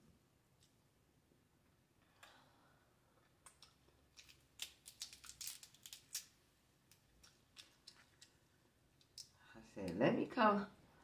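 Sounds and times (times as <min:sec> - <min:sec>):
crab shell crackling: 0:03.4 - 0:08.4.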